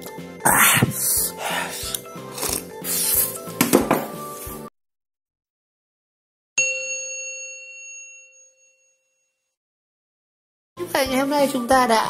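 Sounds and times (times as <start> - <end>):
background music: 0.0 - 4.7, 10.8 - 12.0
bell-like ding: 6.6 - 9.5.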